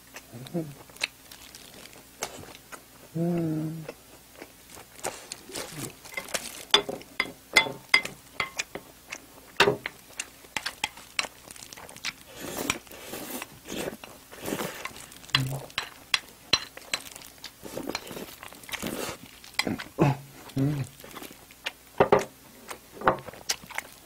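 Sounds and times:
wet chewing: 0:00.0 - 0:24.0
person humming: 0:00.3 - 0:00.8, 0:03.1 - 0:03.9, 0:05.5 - 0:06.0, 0:15.3 - 0:15.7, 0:19.6 - 0:21.0
utensils tapping plate: 0:06.1 - 0:08.8, 0:15.3 - 0:17.0.

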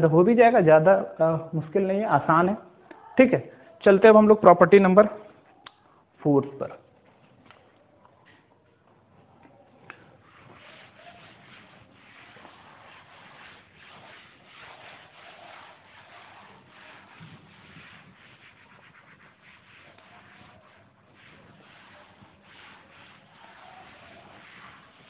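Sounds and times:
cloth rubbing on chalkboard: 0:09.1 - 0:25.0.

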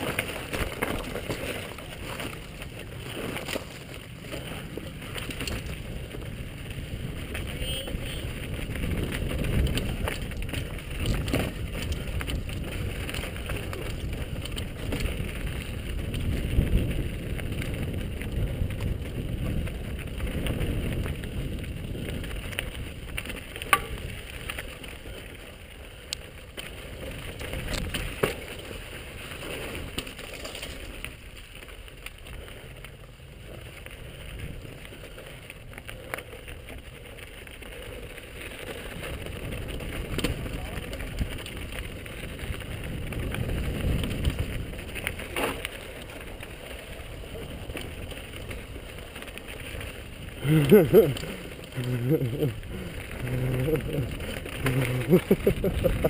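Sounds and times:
bike rattling: 0:00.0 - 0:56.0
tyres on loose stones: 0:00.0 - 0:56.0
wind on microphone: 0:04.3 - 0:25.1, 0:37.8 - 0:45.6.

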